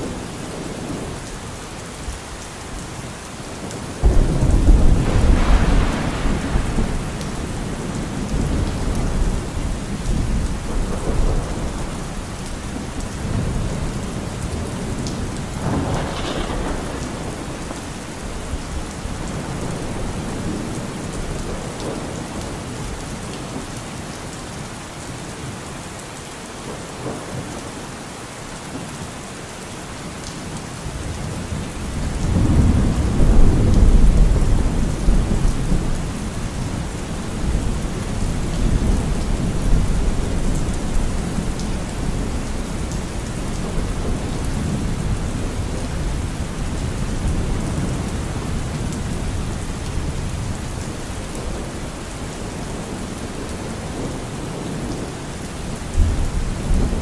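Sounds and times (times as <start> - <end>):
steady rain falling: 0.0 - 57.0
low rolls of thunder: 4.0 - 22.5, 31.0 - 51.7.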